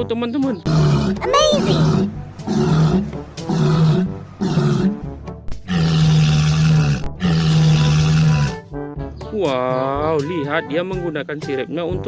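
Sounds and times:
background music: 0.0s - 12.0s
low animal calls: 0.6s - 8.6s.

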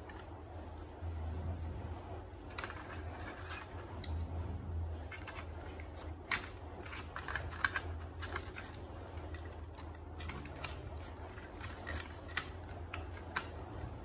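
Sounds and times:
plastic toys clicking into case: 5.2s - 13.6s.

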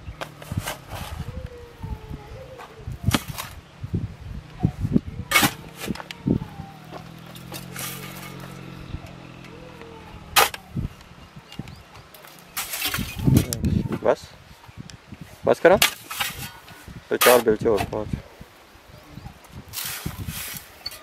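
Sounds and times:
shovel scraping sand and gravel: 0.2s - 1.3s, 5.3s - 6.2s, 6.9s - 8.7s, 12.1s - 13.6s, 15.2s - 18.1s, 19.5s - 21.0s
gravel clanking into metal wheelbarrow: 6.9s - 10.7s, 11.5s - 14.3s, 15.6s - 18.2s.

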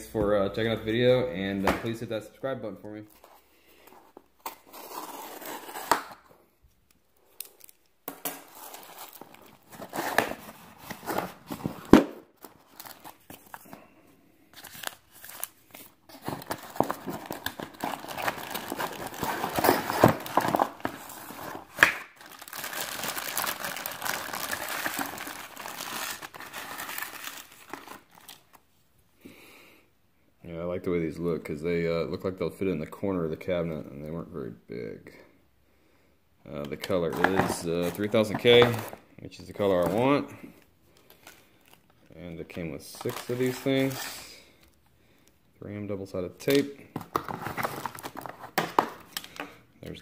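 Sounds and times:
plastic packaging crinkling: 7.3s - 13.9s, 14.5s - 28.6s, 36.9s - 39.0s, 42.8s - 44.3s, 46.5s - 49.4s.

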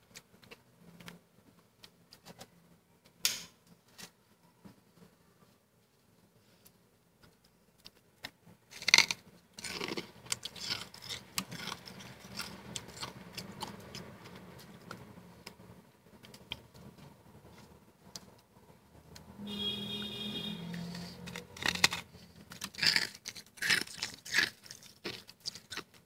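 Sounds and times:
frost being chewed crunching: 7.8s - 18.4s, 21.0s - 26.0s.

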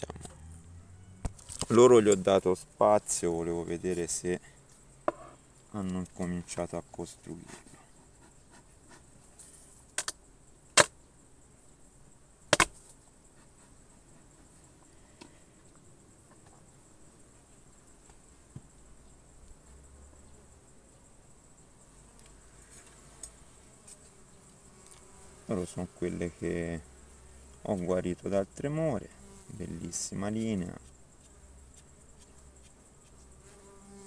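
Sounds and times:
honeybees buzzing: 21.5s - 34.0s.

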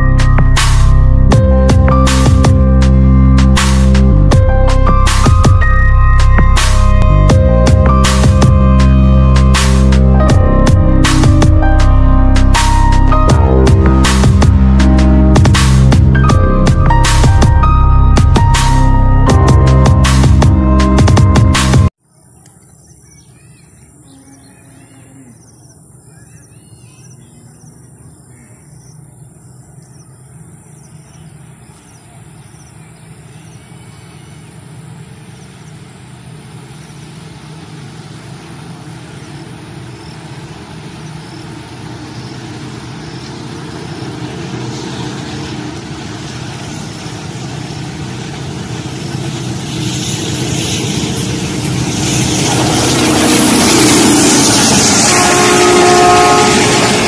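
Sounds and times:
locomotive engine running: 0.0s - 22.0s, 27.4s - 57.0s
train wheel and rail noise: 0.0s - 57.0s
birds chirping: 22.0s - 56.9s.

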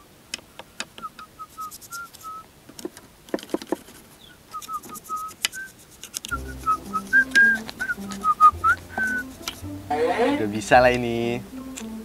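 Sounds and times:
man whistling: 1.0s - 2.4s, 4.5s - 10.5s
tools clicking and knocking: 2.7s - 6.4s.

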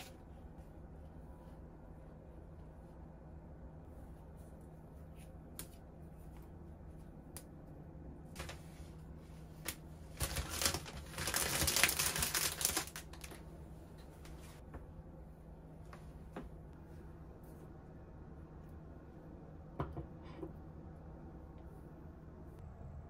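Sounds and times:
crackly rustling of dry stems: 8.3s - 8.7s, 9.6s - 13.4s.

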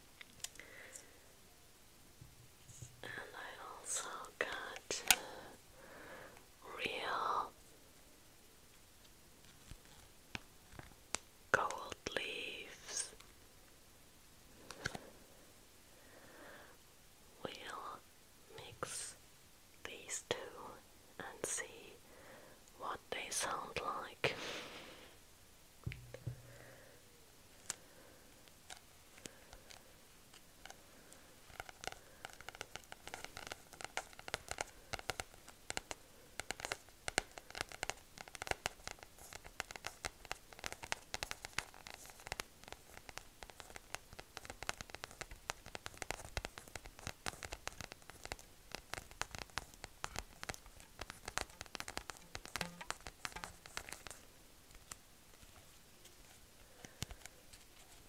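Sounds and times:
fingernails tapping and scratching paper: 31.5s - 54.2s.

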